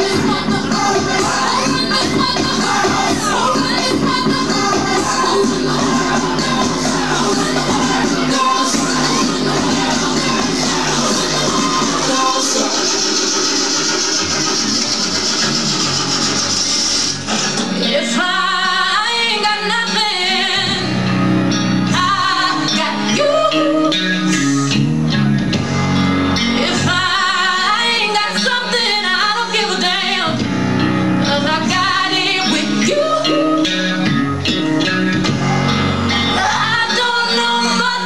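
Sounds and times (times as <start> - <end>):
woman singing: 0.0 - 13.2, 17.8 - 20.9, 21.9 - 24.2, 26.6 - 30.5, 31.2 - 34.0, 36.1 - 38.0
guitar and bass: 0.0 - 38.0.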